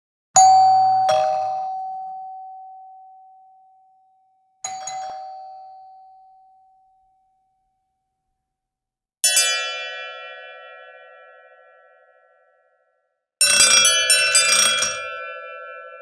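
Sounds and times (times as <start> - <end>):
doorbell chime ding-dong: 0.4 - 7.8, 13.5 - 16.0.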